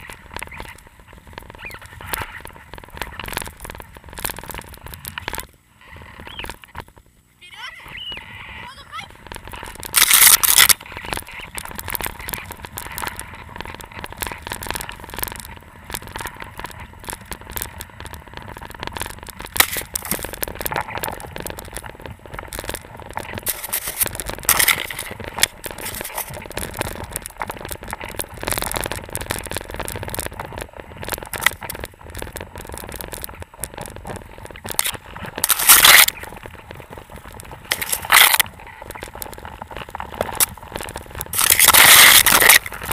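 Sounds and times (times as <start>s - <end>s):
microphone handling rustling: 8.2s - 42.9s.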